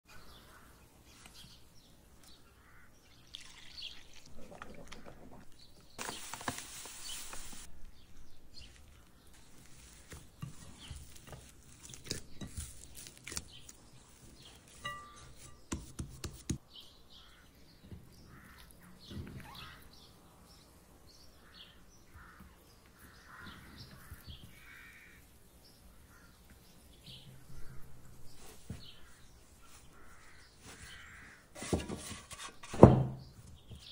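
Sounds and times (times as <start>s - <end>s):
sticky dough kneading by hand: 8.7s - 16.6s.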